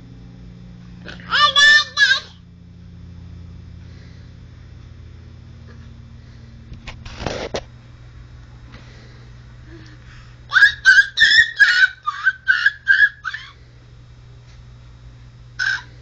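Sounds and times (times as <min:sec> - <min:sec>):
baby squealing with laughter: 0:10.5 - 0:13.6, 0:15.6 - 0:15.9.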